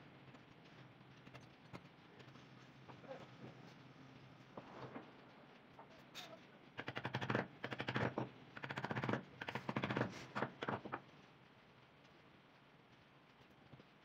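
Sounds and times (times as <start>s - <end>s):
rapid clicking: 6.7s - 14.0s
chisel cutting into wood: 6.8s - 10.8s.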